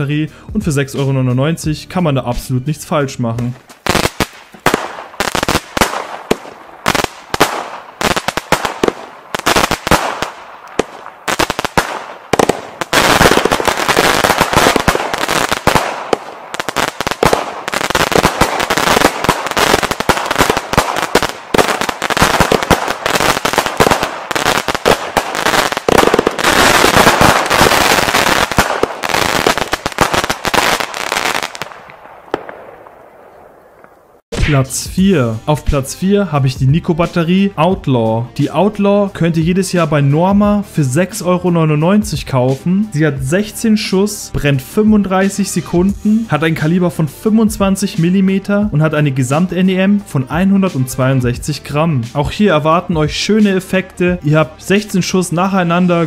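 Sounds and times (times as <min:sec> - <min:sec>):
firework crackling and bangs: 0:03.7 - 0:33.1
firework battery launches and bursts: 0:03.9 - 0:31.9.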